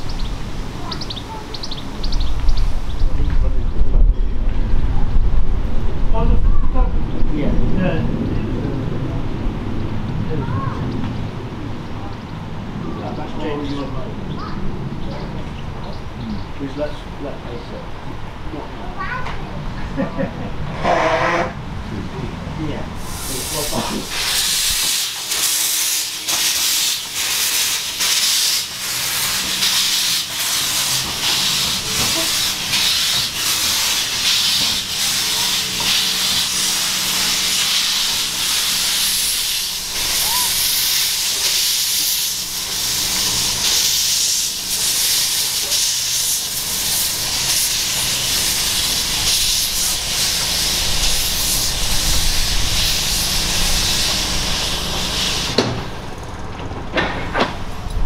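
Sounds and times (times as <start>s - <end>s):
steam hissing: 0.0s - 3.2s, 23.0s - 56.3s
sharp steam puffs: 23.0s - 56.2s.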